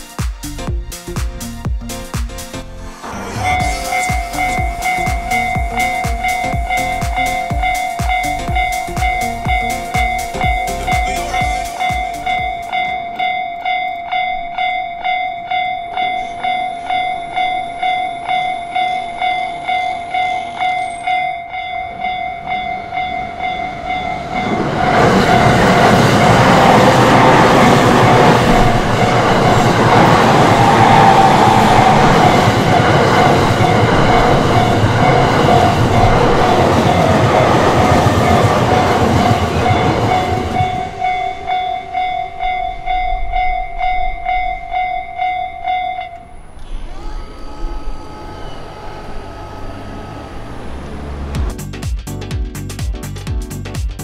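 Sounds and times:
level crossing bell ringing: 0:03.5 - 0:30.4, 0:31.7 - 0:46.4
train wheels clattering on rails: 0:21.9 - 0:46.2.

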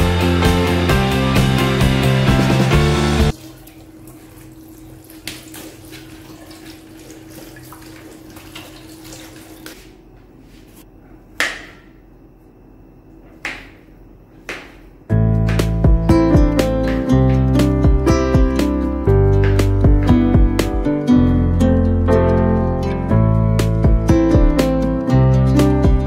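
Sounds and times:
tap water running: 0:03.1 - 0:10.1.

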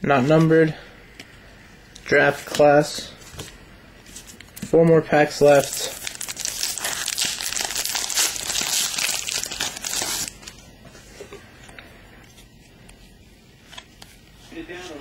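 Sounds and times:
wrapper crinkling and tearing: 0:05.4 - 0:10.4.

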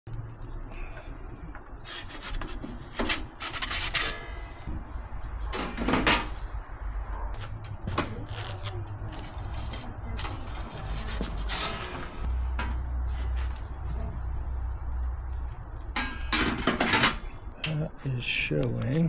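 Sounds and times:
high-pitched insect chorus: 0:00.1 - 0:19.0
items scraping and knocking on table: 0:01.8 - 0:04.6.

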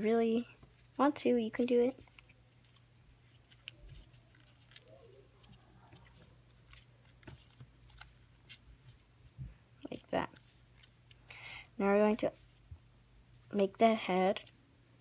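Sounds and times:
paper being folded and creased: 0:00.0 - 0:09.0, 0:10.2 - 0:11.2
low steady hum: 0:00.0 - 0:15.0.

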